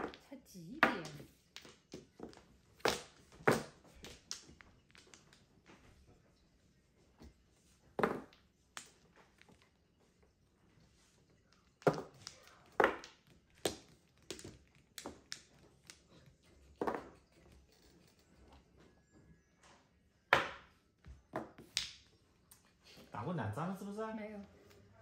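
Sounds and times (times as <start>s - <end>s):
mahjong tiles clacking: 0.0s - 5.6s, 11.4s - 18.6s.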